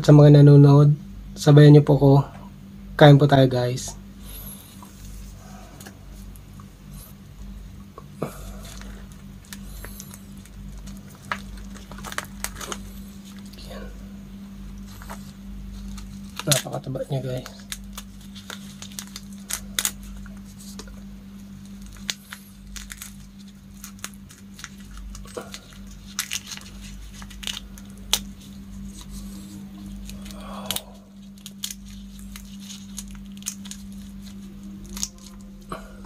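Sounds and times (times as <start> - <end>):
steady low hum: 0.0 - 36.0
prawn shells cracking: 8.2 - 13.6, 14.8 - 35.8
plastic gloves crinkling: 8.2 - 13.9, 14.5 - 35.7.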